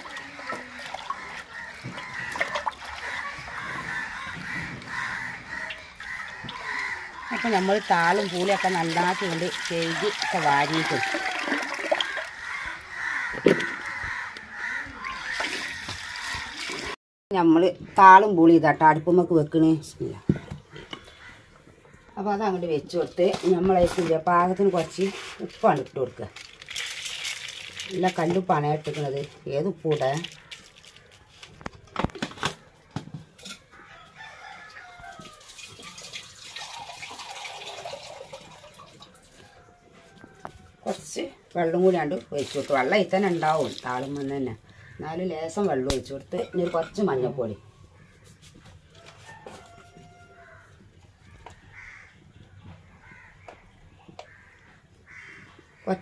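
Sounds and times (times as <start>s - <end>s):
crows cawing: 0.0s - 16.9s, 20.3s - 22.3s, 30.1s - 31.2s, 32.8s - 35.4s, 43.4s - 45.2s, 47.9s - 48.7s, 49.3s - 56.0s
tap water running into a pot: 7.4s - 12.4s, 35.3s - 39.2s
chicken crowing: 9.6s - 16.6s, 33.7s - 35.6s, 48.9s - 50.8s.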